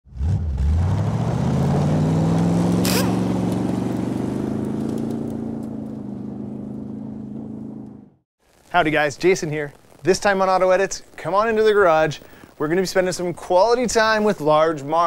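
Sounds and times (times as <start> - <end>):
car engine accelerating: 0.1 - 8.2
sharp crack: 1.6 - 12.7
tyres spraying gravel: 2.6 - 6.1, 8.6 - 15.0.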